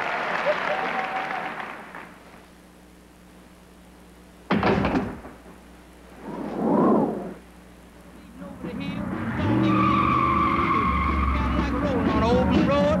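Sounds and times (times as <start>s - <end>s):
audience applause: 0.0s - 2.2s
heavy wooden door slamming: 4.5s - 5.4s
noise swell: 5.7s - 9.4s.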